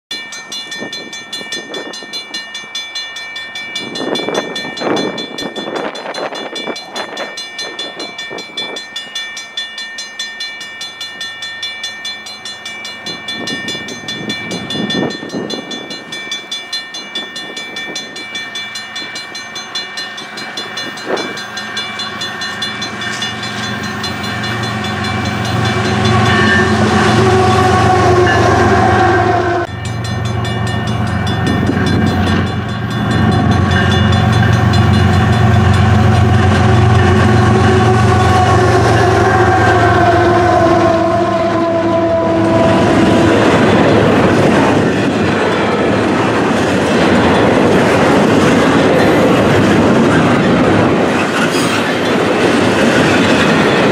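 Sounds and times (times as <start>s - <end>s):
diesel locomotive engines: 0.0s - 53.9s
wheels on rail: 0.0s - 53.9s
pulsing high ringing: 0.1s - 46.0s
train horn: 24.3s - 30.3s, 32.0s - 43.7s.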